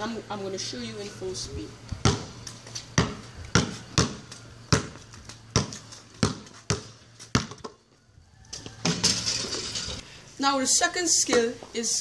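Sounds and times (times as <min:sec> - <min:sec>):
basketball bouncing on concrete: 0:01.9 - 0:07.9, 0:08.5 - 0:09.9.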